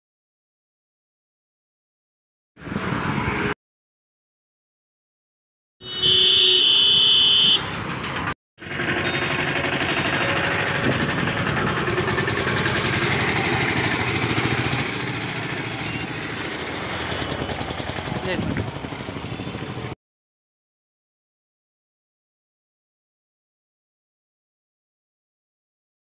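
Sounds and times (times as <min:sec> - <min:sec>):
road noise: 0:02.6 - 0:03.6, 0:05.8 - 0:20.0
loud steady high tone: 0:05.8 - 0:07.6, 0:15.4 - 0:18.4
vehicle engine running: 0:07.8 - 0:20.0.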